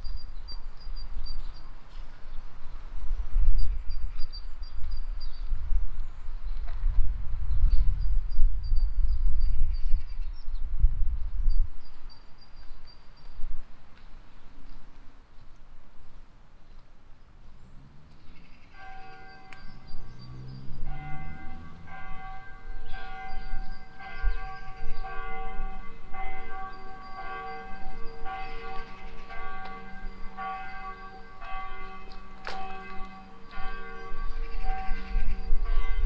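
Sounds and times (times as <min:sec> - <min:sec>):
church bells ringing: 0:18.7 - 0:36.0.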